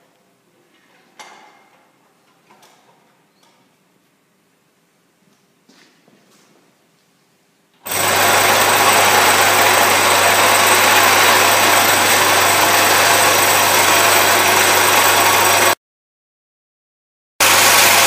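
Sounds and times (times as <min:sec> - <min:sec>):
sieve shaker buzzing: 0:07.9 - 0:15.8, 0:17.4 - 0:18.0.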